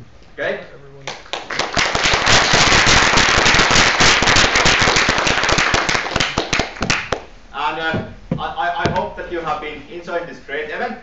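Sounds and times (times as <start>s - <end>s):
audience applauding: 1.1s - 7.3s.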